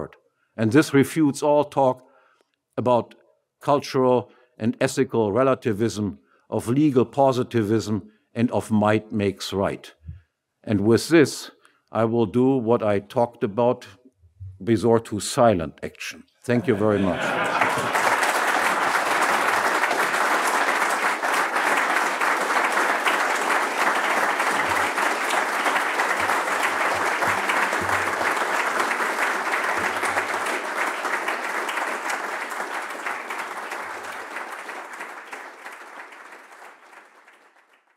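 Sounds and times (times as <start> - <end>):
audience applauding: 16.6 - 37.9.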